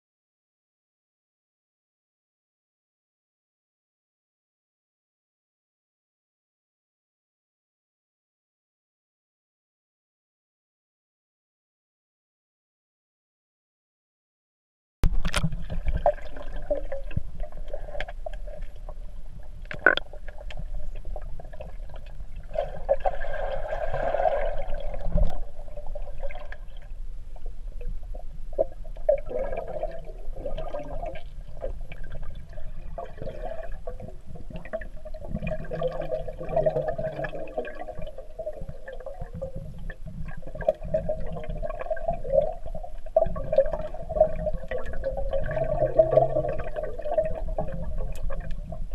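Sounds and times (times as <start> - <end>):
small underwater clicks: 15.1 - 16.0, 16.7 - 22.4, 24.9 - 25.5, 47.2 - 48.9
underwater gurgling and bubbling: 15.1 - 48.9.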